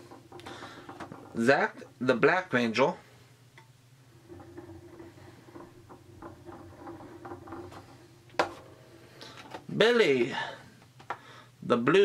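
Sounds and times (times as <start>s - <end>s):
ticking and scraping: 0.0s - 2.6s, 3.6s - 10.4s
turntable bearing hum: 0.0s - 2.8s, 3.4s - 10.6s.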